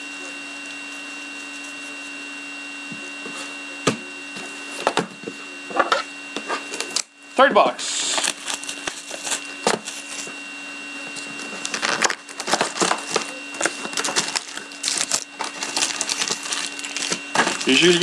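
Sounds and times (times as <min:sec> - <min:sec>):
shrink-wrap crinkling and tearing: 0:07.9 - 0:10.3, 0:11.3 - 0:18.0
foil packs rustling: 0:07.9 - 0:10.4, 0:11.2 - 0:18.0
cardboard box opening: 0:11.5 - 0:17.9.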